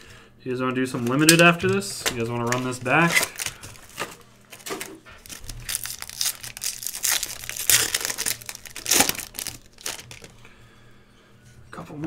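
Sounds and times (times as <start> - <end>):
foil wrapper crinkling and tearing: 0.9 - 10.4.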